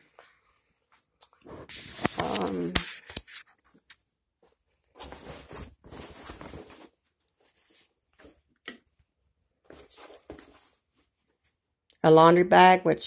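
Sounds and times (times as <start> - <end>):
cloth bag rustling: 5.0 - 8.4.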